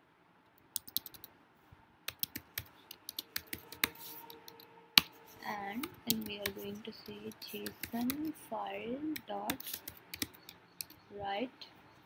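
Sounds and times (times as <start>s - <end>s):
typing on a computer keyboard: 0.8s - 1.3s, 2.1s - 4.7s, 5.6s - 8.3s, 9.1s - 11.0s.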